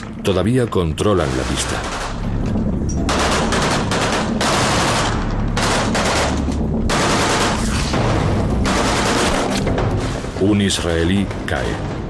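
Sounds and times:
automatic gunfire bursts: 0:08.6 - 0:09.6.

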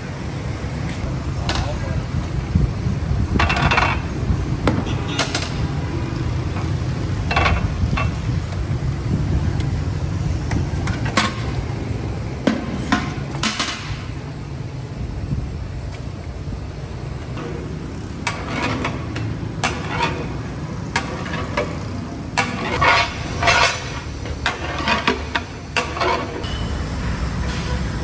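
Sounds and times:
metal buckets and pots clanking: 0:17.4 - 0:26.8.

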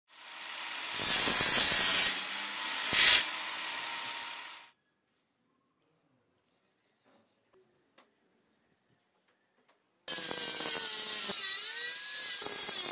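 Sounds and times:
table saw cutting wood: 0:00.1 - 0:04.7, 0:10.1 - 0:12.9.

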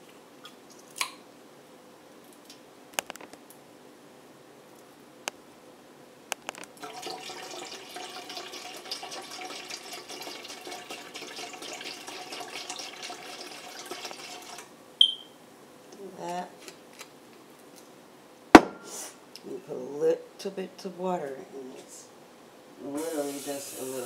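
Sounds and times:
liquid pouring into metal bowl: 0:06.8 - 0:14.7.

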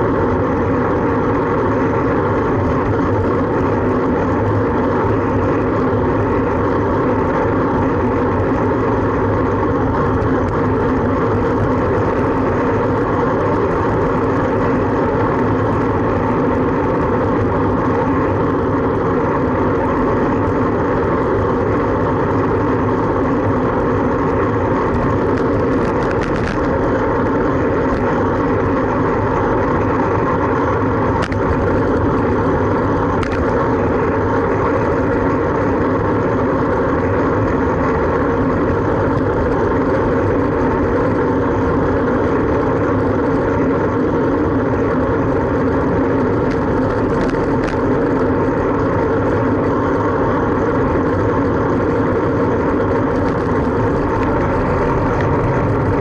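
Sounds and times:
bicycle road noise: 0:00.0 - 0:56.0
car traffic: 0:00.0 - 0:56.0.

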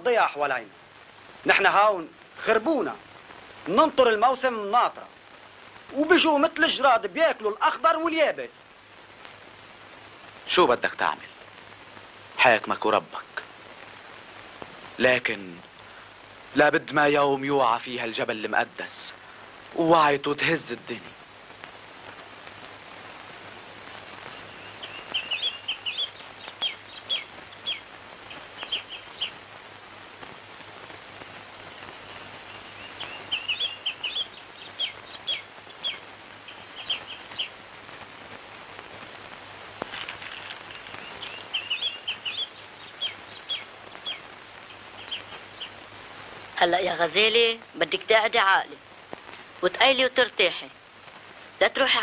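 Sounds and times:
film soundtrack hum and hiss: 0:00.0 - 0:52.0
bird chirping: 0:24.2 - 0:29.5, 0:31.7 - 0:37.7, 0:40.0 - 0:46.0.

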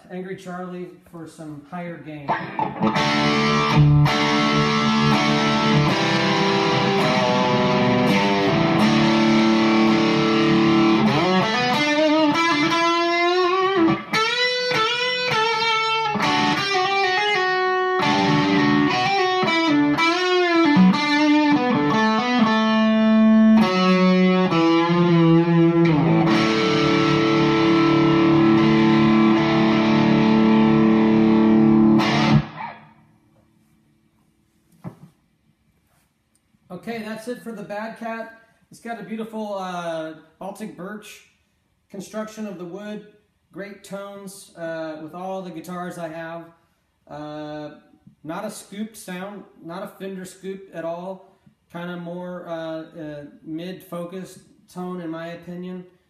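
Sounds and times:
distorted electric guitar: 0:02.2 - 0:33.0.

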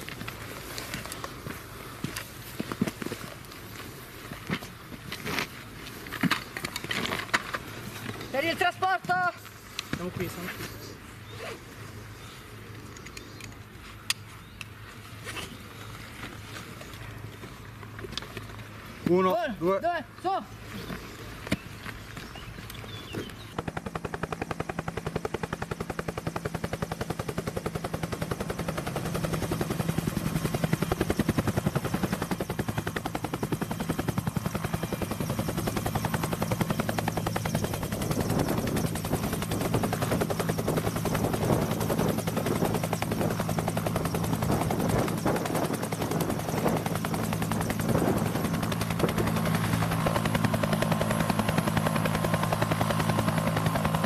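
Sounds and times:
helicopter rotor chop: 0:06.1 - 0:10.9, 0:21.9 - 0:54.0.

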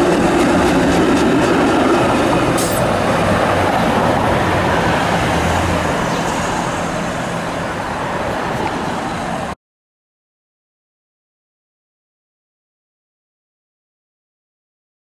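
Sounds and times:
road traffic: 0:00.0 - 0:09.6
streetcar passing: 0:00.0 - 0:09.6.

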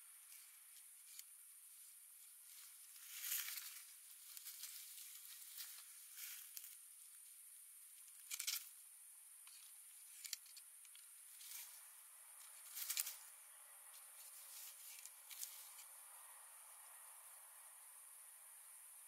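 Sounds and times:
steady high hiss: 0:00.0 - 0:19.0
dry leaves rustling: 0:00.2 - 0:07.4, 0:11.2 - 0:17.1.

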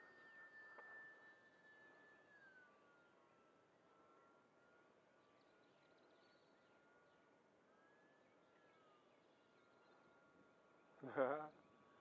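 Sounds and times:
distant model plane motor whine: 0:00.0 - 0:12.0.

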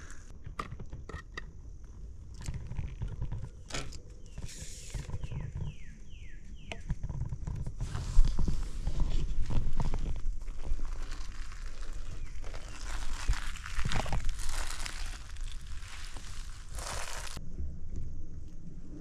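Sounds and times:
low wind rumble: 0:01.5 - 0:19.0
footsteps crunching dry leaves: 0:09.3 - 0:17.4.

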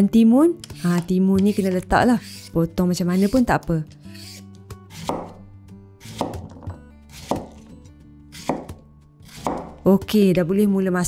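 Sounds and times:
knife slicing cucumber on board: 0:00.6 - 0:05.4, 0:06.0 - 0:07.7, 0:08.4 - 0:09.8.

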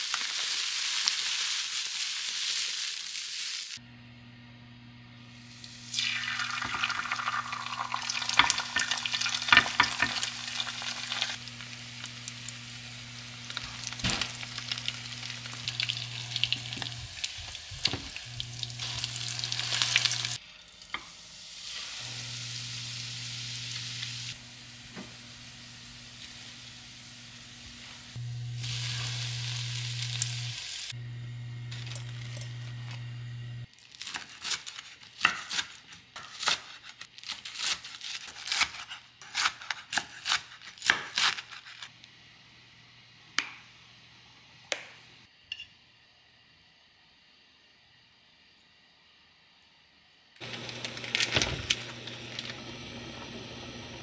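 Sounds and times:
food sizzling in a pan: 0:00.0 - 0:03.8, 0:05.3 - 0:35.8
low hum: 0:21.9 - 0:33.7.

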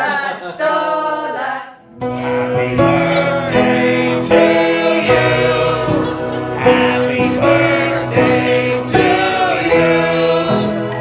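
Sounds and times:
person singing: 0:00.0 - 0:11.0
instrumental backing music: 0:01.9 - 0:11.0.

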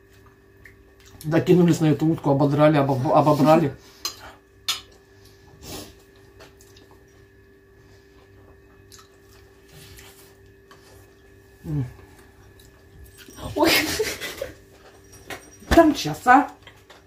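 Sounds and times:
steady low hum: 0:00.0 - 0:17.0
wet chewing: 0:04.0 - 0:07.5, 0:08.1 - 0:13.3.

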